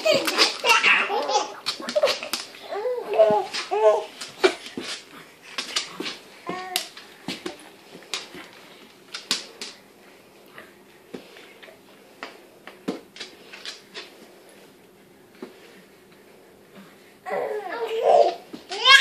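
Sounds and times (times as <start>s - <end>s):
dog claws on floorboards: 3.2s - 9.8s.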